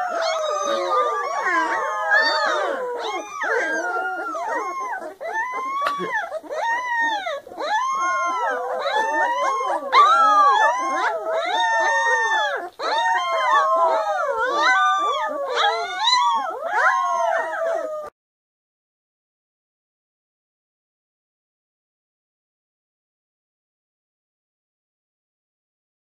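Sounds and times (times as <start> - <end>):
puppies howling: 0.0 - 18.2.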